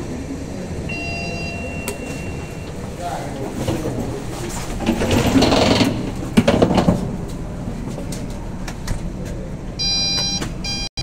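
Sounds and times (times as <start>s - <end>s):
electronic beep: 0.9s - 2.7s, 9.8s - 11.0s.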